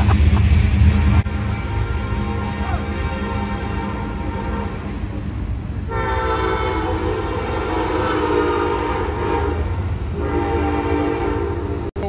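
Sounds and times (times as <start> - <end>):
horn blast: 0.0 - 5.2, 5.8 - 11.9
low rumble: 0.0 - 5.9.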